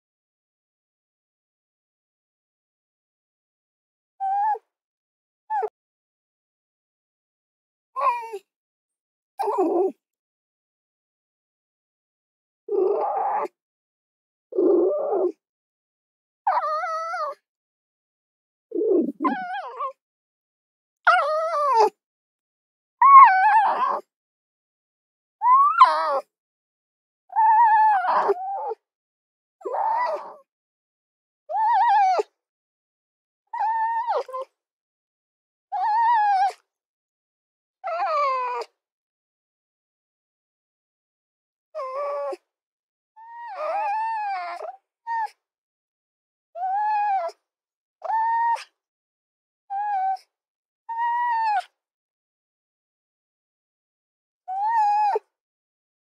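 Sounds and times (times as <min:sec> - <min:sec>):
fox whining cries: 0:18.8 - 0:19.9, 0:23.0 - 0:24.0, 0:25.4 - 0:26.2, 0:27.4 - 0:28.7, 0:29.7 - 0:30.3, 0:31.5 - 0:32.2.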